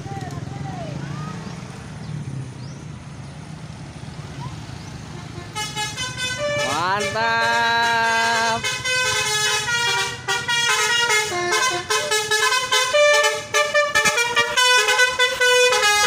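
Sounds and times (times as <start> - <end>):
multi-tone bus horn tune: 5.1 - 16.0.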